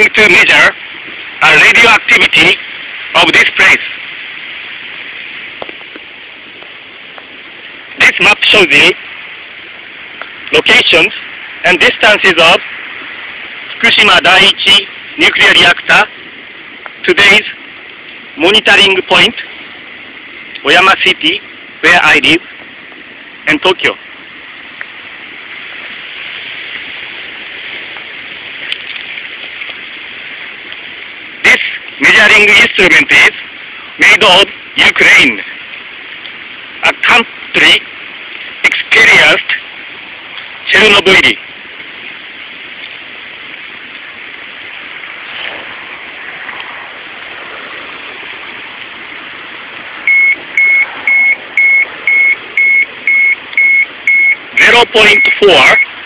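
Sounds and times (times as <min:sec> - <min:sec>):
steady rushing noise: 0:00.0 - 0:56.0
high alarm beeps: 0:50.1 - 0:55.9.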